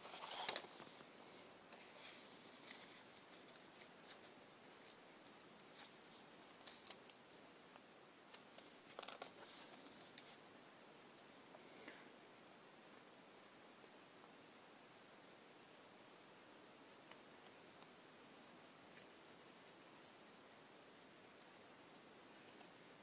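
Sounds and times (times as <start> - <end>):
paper rustling: 0.0 - 1.0, 1.8 - 5.0, 8.3 - 10.4.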